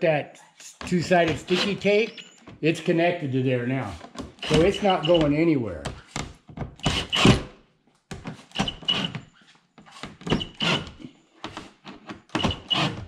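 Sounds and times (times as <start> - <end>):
cordless drill whirring: 4.4 - 5.2, 6.8 - 7.5, 8.5 - 9.2, 10.3 - 10.9, 12.4 - 13.0.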